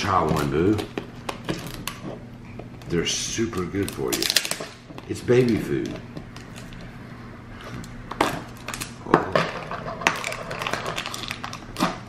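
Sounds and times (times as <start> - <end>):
plastic packaging ripping: 0.0 - 2.0, 2.8 - 6.8, 7.8 - 9.1, 9.9 - 12.0
plastic packaging crinkling: 0.0 - 6.9, 7.6 - 12.0.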